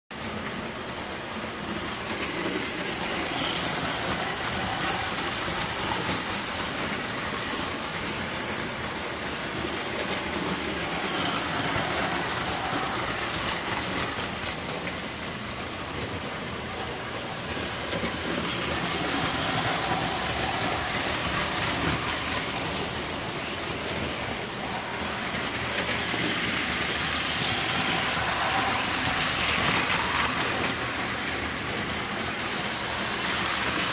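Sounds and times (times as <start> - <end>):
toy trains rumbling on track: 0.1 - 33.9.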